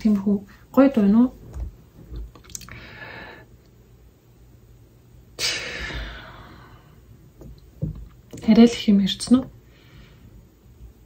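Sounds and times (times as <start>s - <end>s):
person exhaling a sigh: 5.4s - 7.0s.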